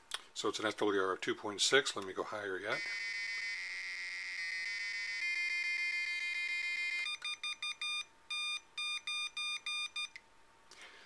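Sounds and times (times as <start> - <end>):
buzzy square-wave tone: 2.6 - 7.1
morse code beeps: 4.4 - 10.1.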